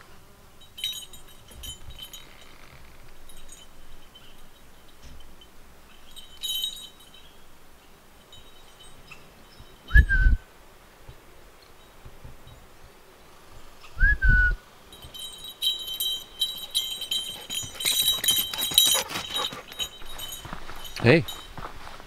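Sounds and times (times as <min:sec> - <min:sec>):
dog collar tags jingling: 0:00.7 - 0:07.4, 0:08.2 - 0:09.9, 0:14.9 - 0:21.9
short whistle: 0:09.9 - 0:10.4, 0:14.0 - 0:14.6.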